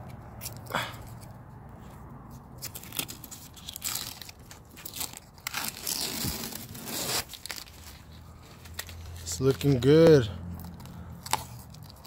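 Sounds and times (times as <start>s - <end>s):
masking tape peeling: 2.6s - 9.6s.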